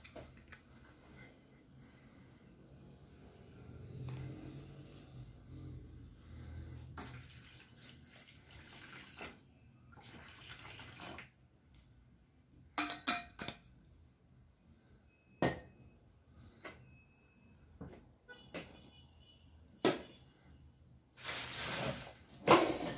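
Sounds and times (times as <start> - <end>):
water pouring into plastic basin: 7.0 - 11.4.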